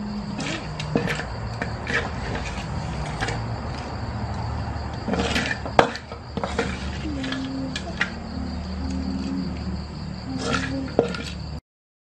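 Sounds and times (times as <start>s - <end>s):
cricket trill: 0.0s - 11.6s
steady low hum: 0.0s - 11.6s
dishes and utensils clicking: 10.4s - 11.4s.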